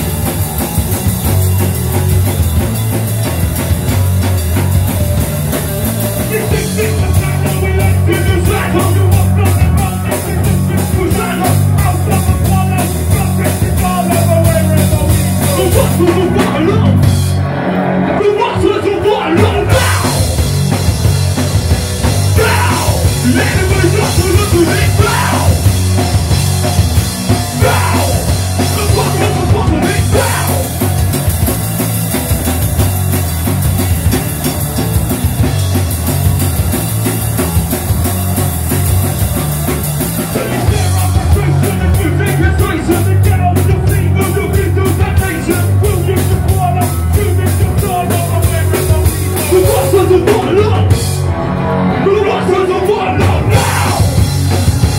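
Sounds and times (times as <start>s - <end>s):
punk rock band playing: 0.0s - 54.9s
vocals into microphones: 6.3s - 17.0s, 18.1s - 20.3s, 22.4s - 25.7s, 27.6s - 30.8s, 40.3s - 51.0s, 52.0s - 54.2s
fast drum hits: 19.4s - 51.2s.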